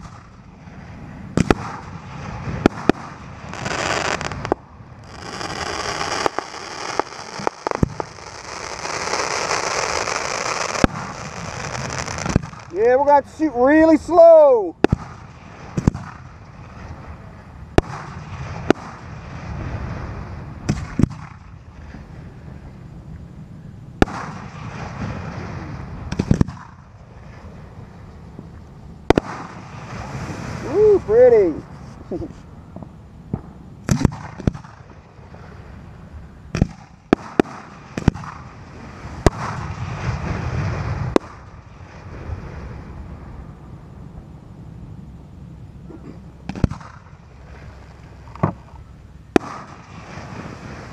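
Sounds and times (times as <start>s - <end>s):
fireworks bangs: 0.0s - 14.2s, 14.8s - 17.2s, 17.8s - 22.0s, 24.0s - 27.6s, 29.1s - 31.6s, 32.8s - 35.4s, 36.5s - 43.3s, 46.4s - 47.2s, 49.3s - 50.9s
fireworks crackling hiss: 0.0s - 22.7s, 24.0s - 44.0s, 46.2s - 50.9s.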